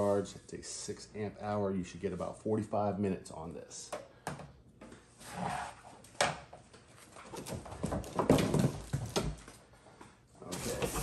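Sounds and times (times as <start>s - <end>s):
plastic and cardboard rustling: 6.8s - 9.8s, 10.4s - 11.0s.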